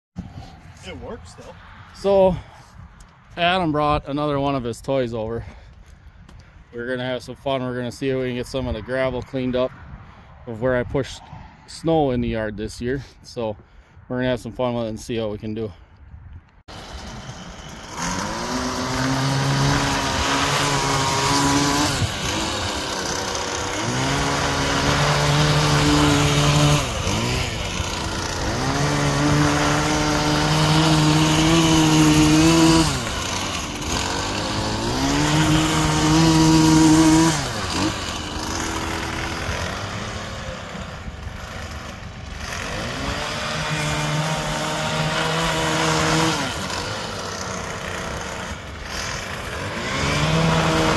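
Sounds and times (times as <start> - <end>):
small gasoline engine revving: 16.7 - 50.9.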